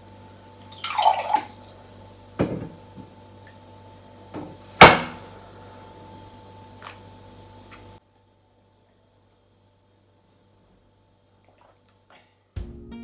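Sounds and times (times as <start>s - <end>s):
water pouring into glass: 0.8s - 1.6s
jug and glass knocking on counter: 2.4s - 2.8s.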